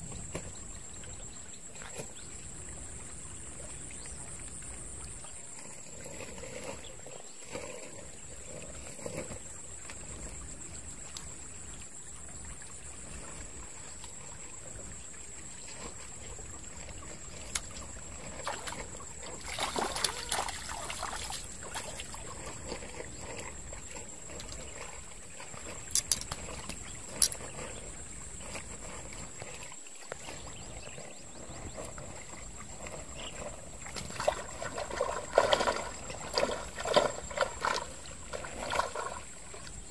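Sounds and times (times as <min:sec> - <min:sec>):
stream trickling: 0:00.0 - 0:39.9
fish splashing and thrashing: 0:15.7 - 0:39.9.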